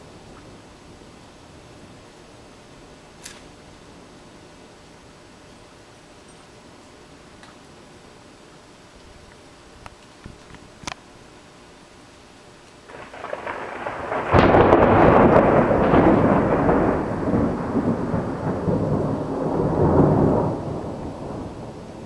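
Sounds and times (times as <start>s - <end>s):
thunder rumbling and clapping: 12.9s - 22.0s.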